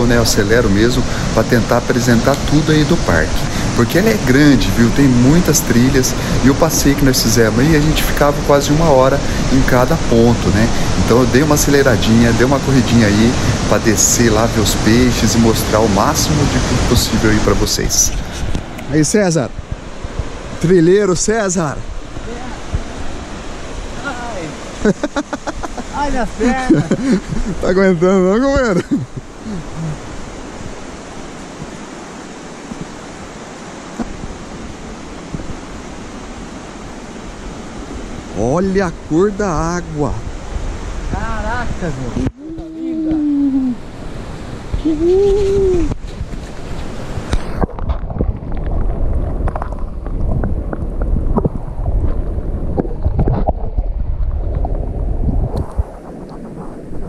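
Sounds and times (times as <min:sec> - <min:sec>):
river rushing over rapids: 0:00.0 - 0:50.8
muffled underwater water rumble: 0:47.0 - 0:57.0.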